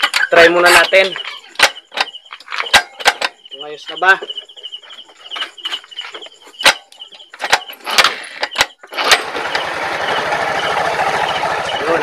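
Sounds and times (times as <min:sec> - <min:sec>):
scooter engine running: 0:08.9 - 0:12.0.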